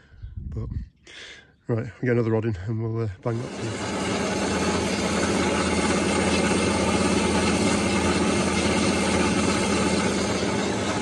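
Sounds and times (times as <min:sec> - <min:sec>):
bandsaw cutting steel: 0:03.3 - 0:11.0
motor hum: 0:03.3 - 0:11.0.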